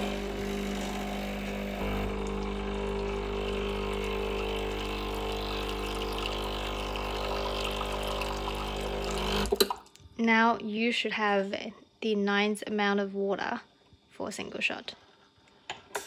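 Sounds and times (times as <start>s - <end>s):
espresso machine pump humming: 0.0s - 9.8s.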